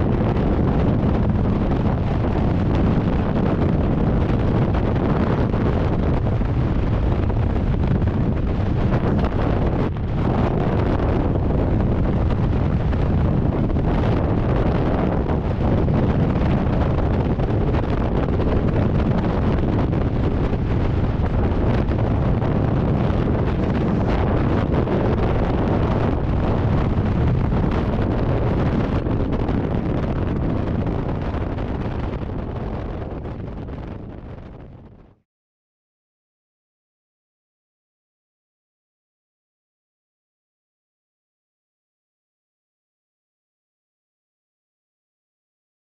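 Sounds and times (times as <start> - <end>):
wind rushing over microphone: 0.0 - 35.2.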